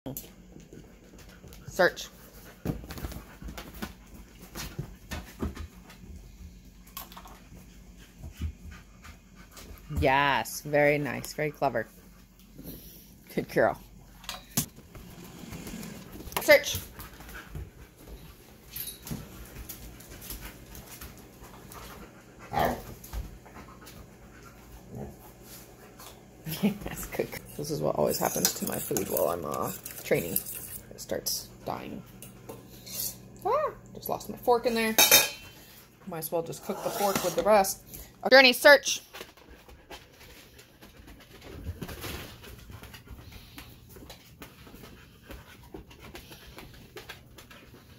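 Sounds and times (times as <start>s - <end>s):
paws tapping on floor: 0.3s - 10.2s, 14.6s - 27.5s, 38.6s - 47.9s
dog panting and sniffing: 0.6s - 6.3s, 7.2s - 10.0s, 11.0s - 13.3s, 14.9s - 26.2s, 39.1s - 47.9s.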